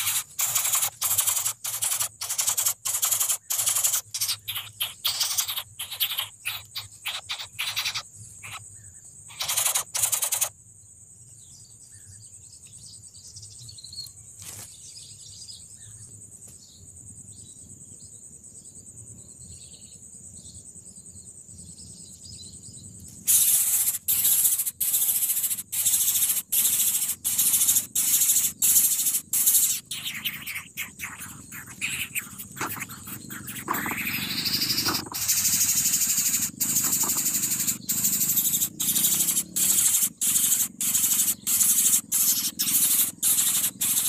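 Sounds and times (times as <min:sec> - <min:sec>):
nestlings harsh hissing begging calls: 0:00.0 - 0:08.6, 0:09.3 - 0:10.5, 0:23.2 - 0:44.0
faint chirps: 0:00.0 - 0:10.6, 0:11.4 - 0:44.0
high insect drone: 0:00.0 - 0:44.0.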